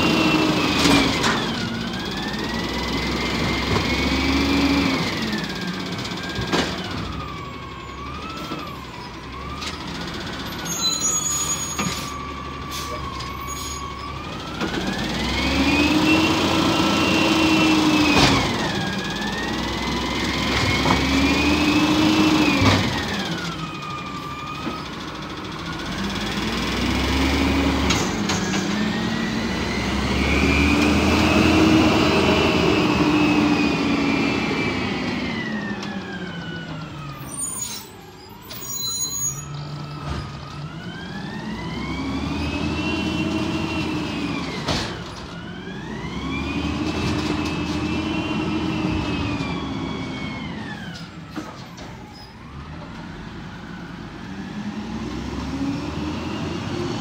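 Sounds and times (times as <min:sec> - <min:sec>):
garbage truck engine revving: 0:00.0 - 0:10.7, 0:14.1 - 0:37.3, 0:39.7 - 0:51.1, 0:52.9 - 0:57.0
knocks and clanks of carts: 0:00.3 - 0:04.3, 0:05.0 - 0:07.4, 0:17.8 - 0:23.8, 0:24.5 - 0:29.2, 0:44.2 - 0:45.5, 0:50.8 - 0:53.1.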